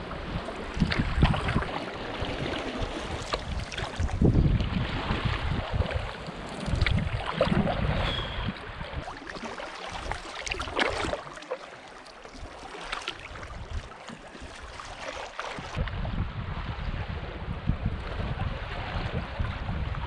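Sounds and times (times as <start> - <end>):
wind rumble on microphone: 0.0 - 9.2, 13.2 - 20.0
paddle splashing in water: 0.2 - 16.1.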